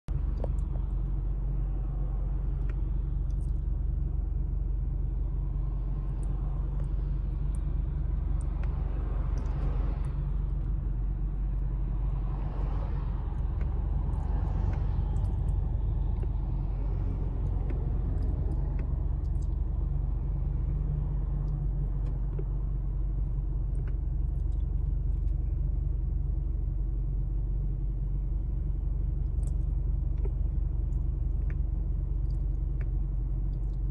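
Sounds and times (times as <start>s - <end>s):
traffic rumble: 0.0s - 33.9s
cars passing: 5.2s - 23.1s.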